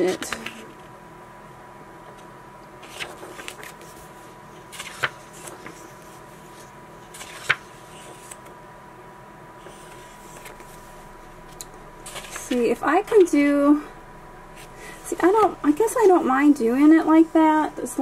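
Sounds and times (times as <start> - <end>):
book pages turning: 0.0 - 0.8, 2.8 - 8.5, 9.6 - 13.3
faint steady hum: 0.0 - 18.0.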